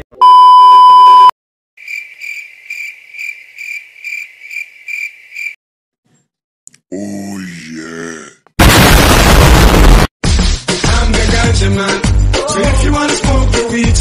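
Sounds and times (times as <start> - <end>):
test-card beep: 0.2 - 1.3
cricket chirping: 1.8 - 5.6.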